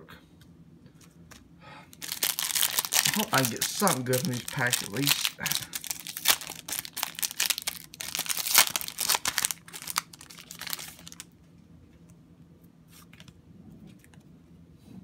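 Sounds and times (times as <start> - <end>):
cards rustling: 1.0 - 11.2
foil wrapper tearing and crinkling: 2.0 - 11.3.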